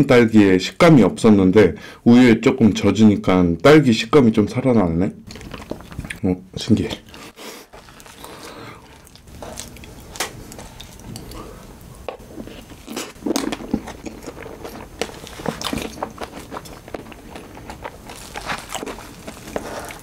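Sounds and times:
person chewing wetly: 5.2 - 6.2, 7.1 - 11.5, 12.1 - 20.0.

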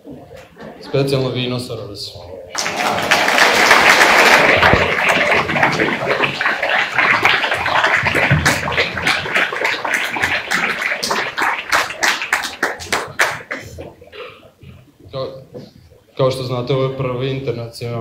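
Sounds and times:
audience applauding: 2.6 - 13.8.

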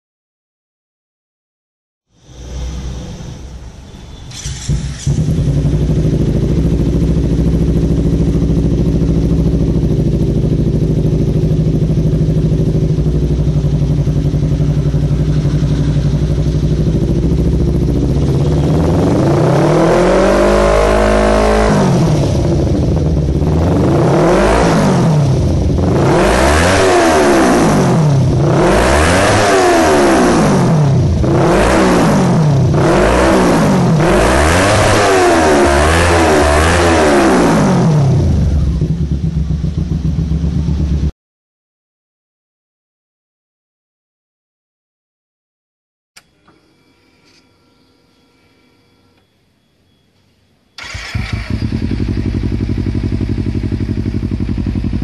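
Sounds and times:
motorcycle engine idling and revving: 2.1 - 41.2, 50.8 - 55.0.

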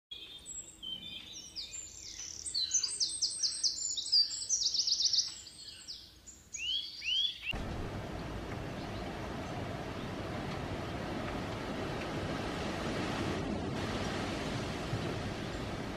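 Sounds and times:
songbird chirps and trills: 0.1 - 11.4
outdoor background hiss: 0.1 - 15.9.

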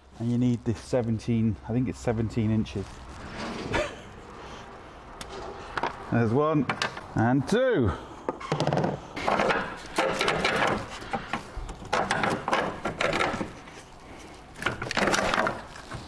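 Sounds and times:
metal plate scraping and knocking: 8.4 - 13.7.

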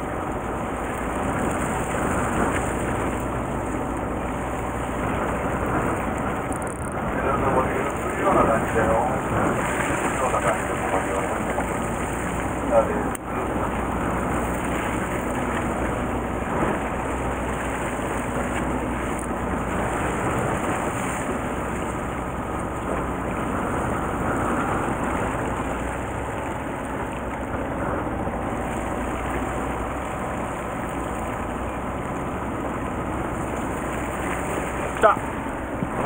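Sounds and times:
boat engine droning: 0.0 - 36.0
water wash: 0.0 - 36.0
wind noise: 33.9 - 36.0.

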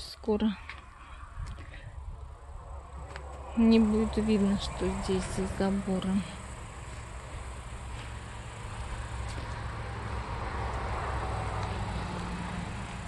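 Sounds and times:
low rumble of wind: 0.0 - 13.0
vehicle passing: 0.7 - 13.0.

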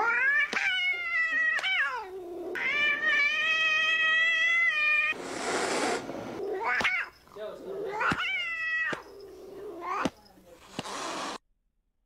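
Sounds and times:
cat yowling: 0.0 - 5.2, 6.4 - 10.2
cat hissing: 0.0 - 11.4.

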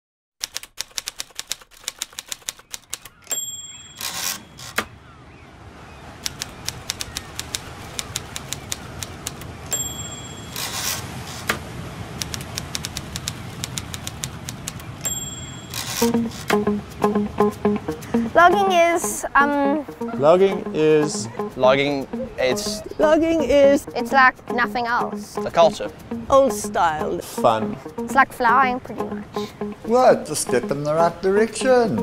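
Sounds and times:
typewriter keystrokes clacking: 0.4 - 3.4, 6.2 - 9.5, 12.2 - 14.9
typewriter bell dinging: 3.2 - 4.8, 9.7 - 11.4, 15.0 - 16.5.

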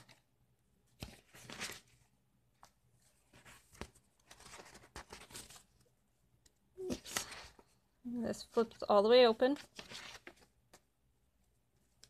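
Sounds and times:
paper pages rustling: 0.0 - 6.0, 6.8 - 7.8, 9.5 - 10.9.

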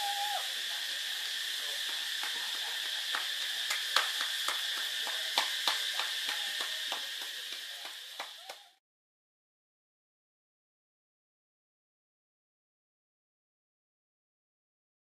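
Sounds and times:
insect chorus buzzing: 0.0 - 8.8.

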